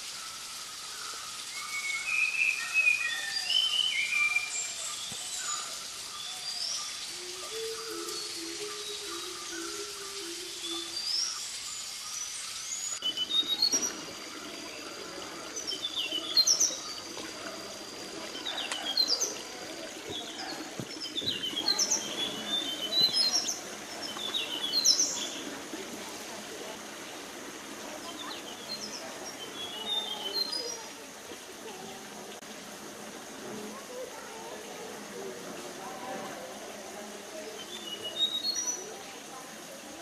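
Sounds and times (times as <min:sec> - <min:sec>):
birds chirping and whistling: 0:01.4 - 0:25.6, 0:28.0 - 0:30.8, 0:37.6 - 0:38.9.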